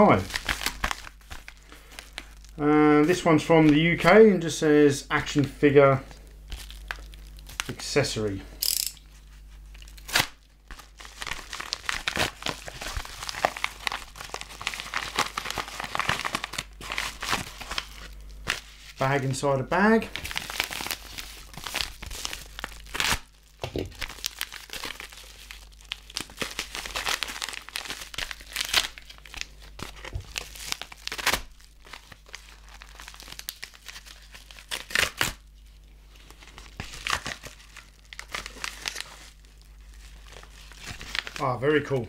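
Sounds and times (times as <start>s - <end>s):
bags ripping: 0.0s - 2.6s, 9.7s - 18.7s, 20.0s - 35.4s, 36.4s - 41.5s
mailing bags crinkling: 0.0s - 4.0s, 6.0s - 8.3s, 9.1s - 19.2s, 19.9s - 41.6s.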